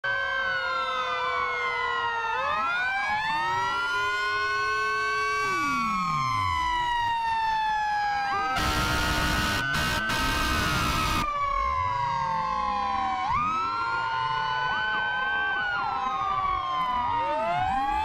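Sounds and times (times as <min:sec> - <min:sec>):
fire engine sirens wailing: 0:00.0 - 0:18.0.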